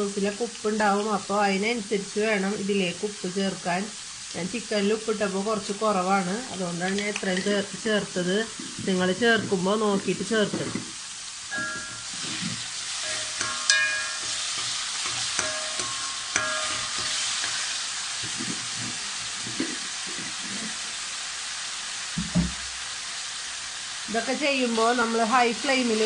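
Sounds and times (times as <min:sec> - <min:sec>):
vegetables sizzling in wok: 0:00.0 - 0:26.0
metal spoon clinking on pan: 0:11.5 - 0:18.4.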